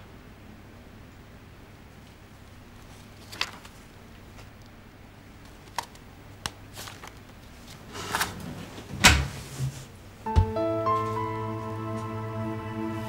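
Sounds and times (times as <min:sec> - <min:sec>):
paper pages rustling: 0:02.8 - 0:04.5, 0:05.4 - 0:08.4.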